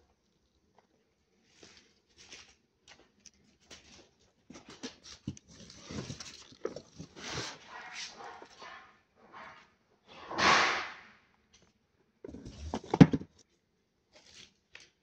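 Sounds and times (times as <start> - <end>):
rustling and scuffing: 1.4 - 6.4.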